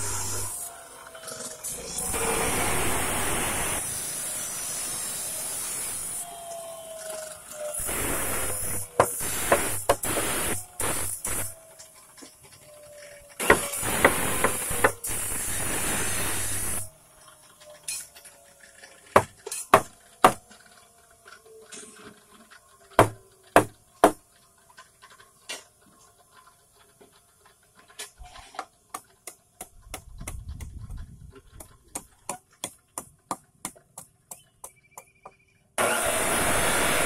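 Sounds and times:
hatchet knocking on wood: 23.0 - 24.2.

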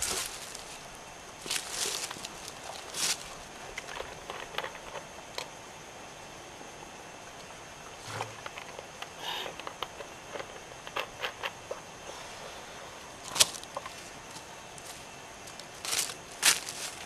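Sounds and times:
footsteps crunching dry leaves: 0.0 - 3.5, 13.2 - 17.0
crackles on dry leaf litter: 0.0 - 4.7, 13.2 - 17.0.

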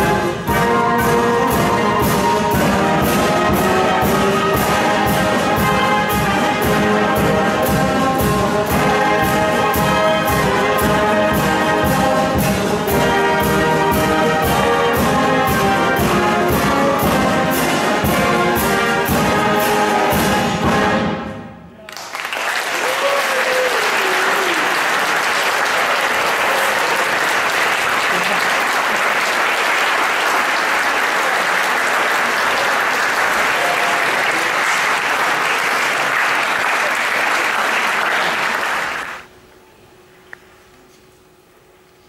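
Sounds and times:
wind band playing: 0.0 - 21.8
audience applause: 21.8 - 39.3.

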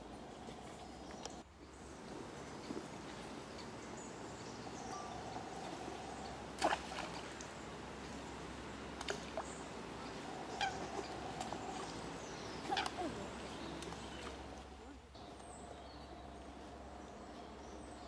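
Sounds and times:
faint steady hum: 0.0 - 18.0
coots calling: 9.3 - 13.8.

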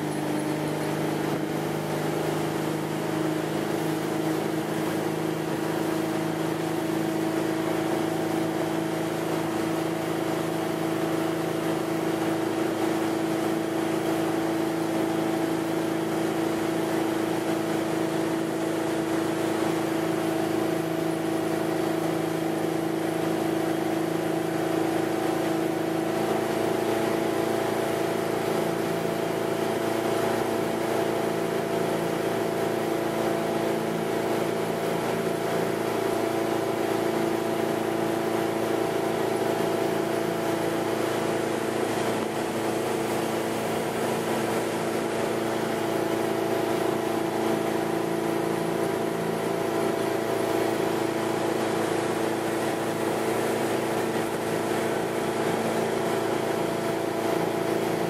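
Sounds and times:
boat engine droning: 0.0 - 58.0
rushing water: 0.0 - 58.0.

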